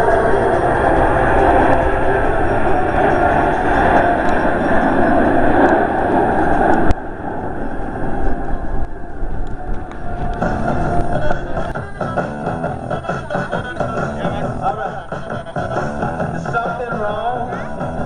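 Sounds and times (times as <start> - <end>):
jets flying past: 0.0 - 12.0
faint jet rumble: 0.0 - 18.0.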